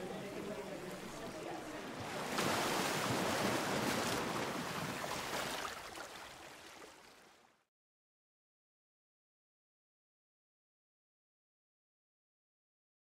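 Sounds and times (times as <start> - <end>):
rushing water: 0.0 - 7.7.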